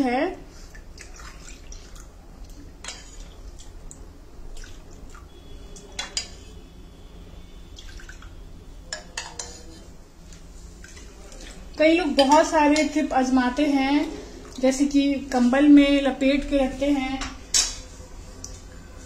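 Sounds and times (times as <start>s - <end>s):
milk dripping and splashing: 0.8s - 6.1s, 7.8s - 8.4s.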